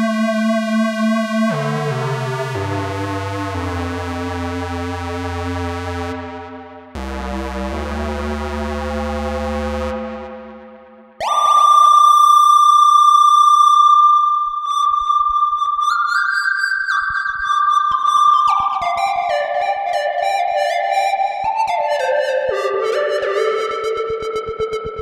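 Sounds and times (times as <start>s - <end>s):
buzzy synthesizer notes with echo: 0.0s - 16.0s
steady high tone: 9.9s - 13.2s.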